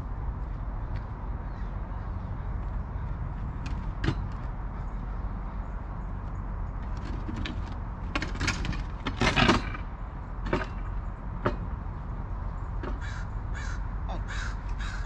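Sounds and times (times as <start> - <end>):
knocks and clatter: 3.6 - 4.6, 6.7 - 12.0
crow cawing: 12.9 - 15.0.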